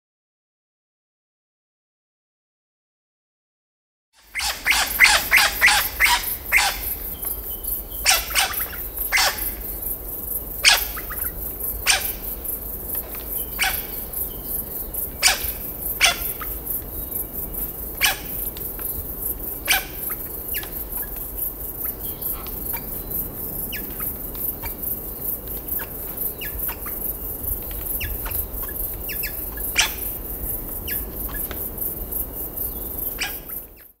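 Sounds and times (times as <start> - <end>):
bird squeaking: 4.2 - 7.3, 8.0 - 9.6
steady high hiss: 4.2 - 33.8.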